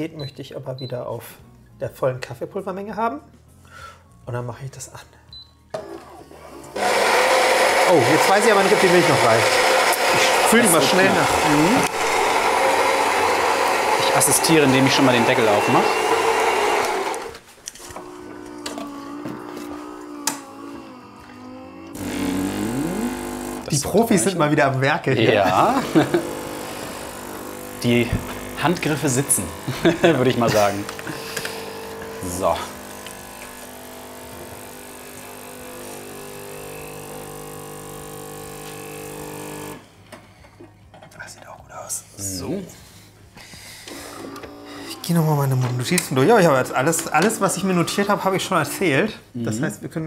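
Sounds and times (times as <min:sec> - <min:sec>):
coffee machine rushing noise: 0:05.8 - 0:17.4, 0:22.0 - 0:23.7, 0:25.8 - 0:39.8.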